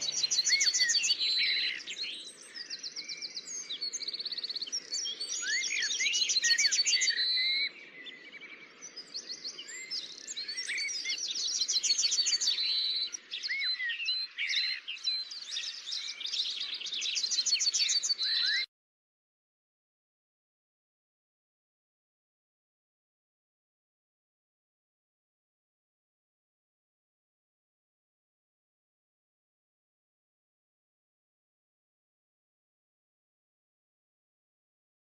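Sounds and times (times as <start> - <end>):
songbirds trilling and chirping: 0.0 - 18.7
upward-sweeping bird whistles: 0.0 - 18.7.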